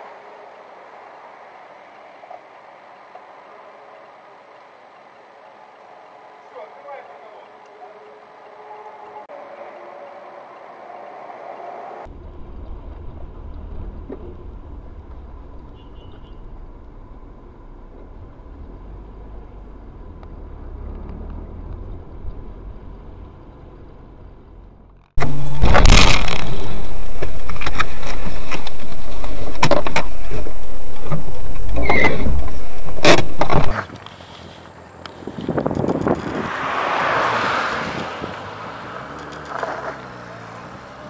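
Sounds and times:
road and engine rumble: 0.0s - 41.0s
loud distorted noise: 25.2s - 33.7s.

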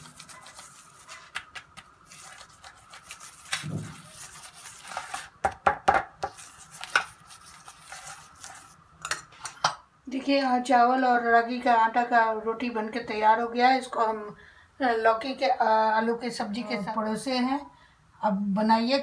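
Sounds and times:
spoon scraping on roti: 0.0s - 5.4s, 6.0s - 9.7s.

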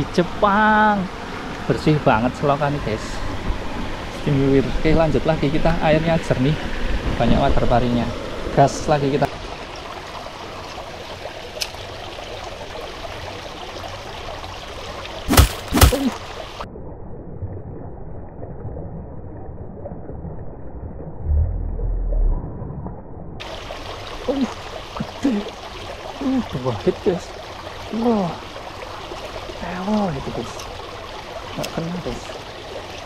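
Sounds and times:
stream water flowing: 0.0s - 16.7s, 23.4s - 33.0s
sharp knocks: 15.3s - 16.1s
low rumble: 16.7s - 23.4s.

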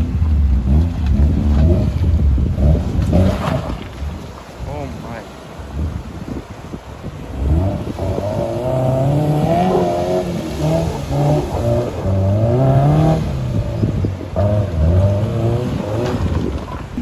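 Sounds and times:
engine revving hard: 7.3s - 16.3s.

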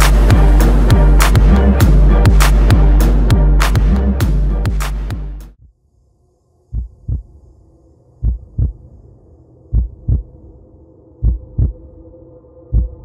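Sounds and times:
faint steady drone: 5.7s - 13.0s
heartbeat thumps: 6.7s - 7.4s, 8.2s - 8.8s, 9.7s - 10.4s, 11.2s - 11.9s, 12.7s - 13.0s.

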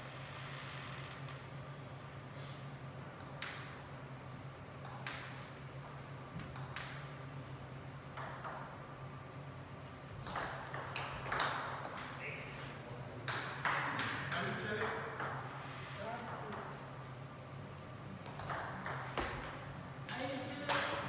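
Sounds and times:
table tennis ball clicks: 4.8s - 5.5s, 6.5s - 7.2s, 8.1s - 8.7s, 10.2s - 12.2s
bat strikes and table bounces: 10.2s - 12.2s.

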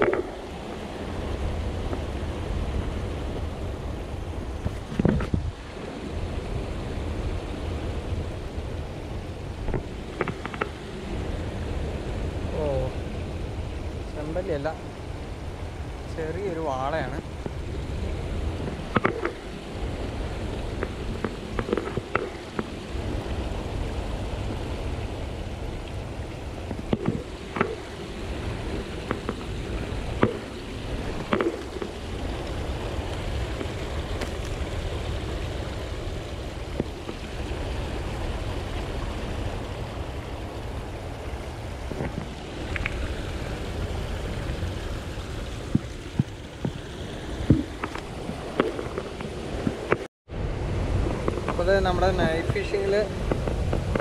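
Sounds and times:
river water running: 0.0s - 54.0s
clicks and knocks of rod on rocks: 4.6s - 5.5s, 18.8s - 19.4s, 20.8s - 22.7s, 26.7s - 27.8s, 29.1s - 29.5s.

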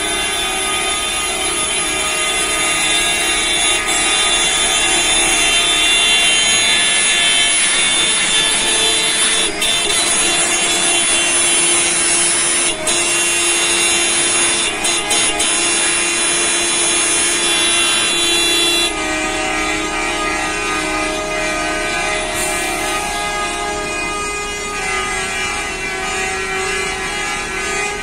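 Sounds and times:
bus horns blaring: 0.0s - 28.0s.

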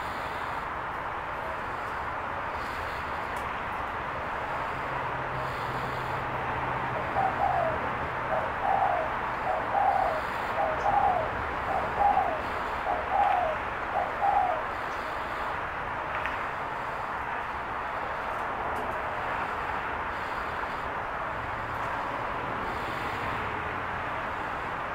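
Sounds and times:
dove cooing: 6.9s - 15.4s.

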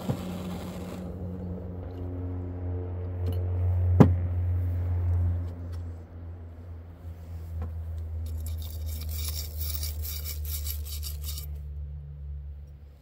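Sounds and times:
wire brush scrubbing metal: 8.3s - 11.6s.

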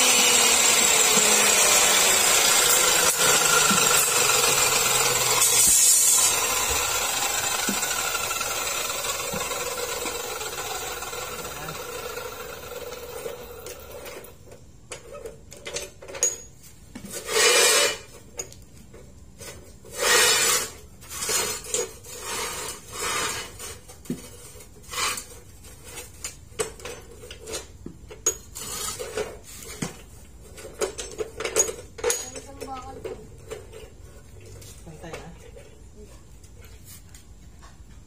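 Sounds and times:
rasping bursts: 0.0s - 14.0s.

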